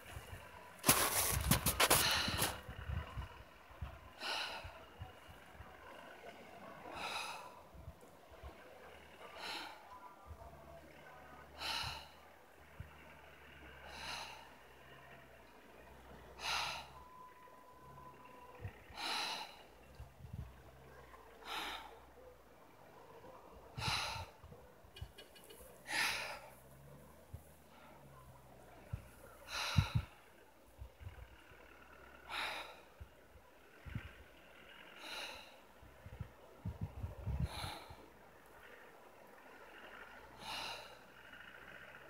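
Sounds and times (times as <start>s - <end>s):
faint breathing: 0.0s - 42.0s
person breathing close to microphone: 0.8s - 2.7s, 23.8s - 24.5s, 28.9s - 30.2s.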